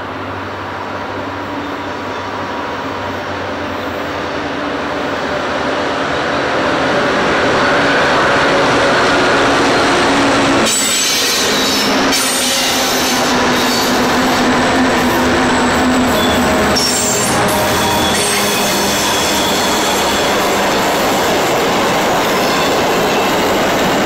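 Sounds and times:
diesel locomotive engines: 0.0 - 24.0
steel wheels squealing on rails: 7.6 - 24.0.

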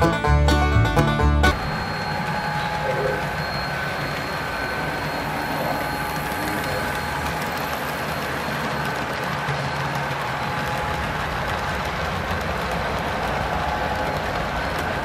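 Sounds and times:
faint steady whine: 1.5 - 11.2
model train rolling rumble: 1.5 - 15.0.

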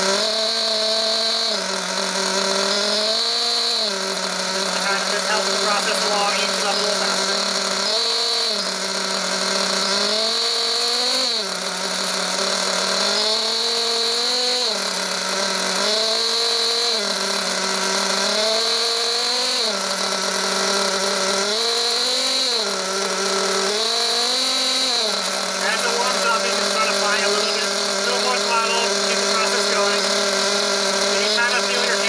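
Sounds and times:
model engine idling with throttle blips: 0.0 - 32.0.

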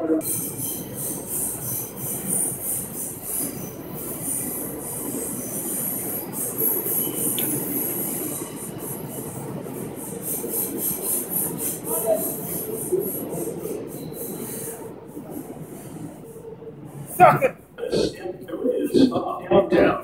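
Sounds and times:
vacuum train rushing hiss: 0.2 - 16.2.

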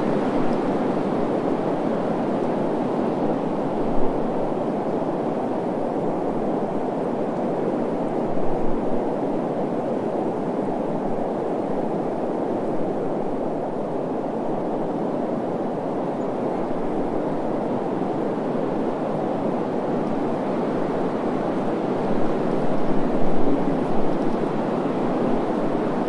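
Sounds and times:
rushing wind: 0.0 - 26.0.

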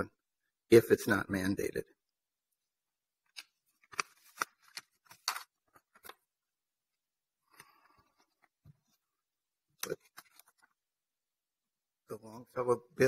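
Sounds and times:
papers rustling: 3.3 - 6.3, 9.8 - 10.8.

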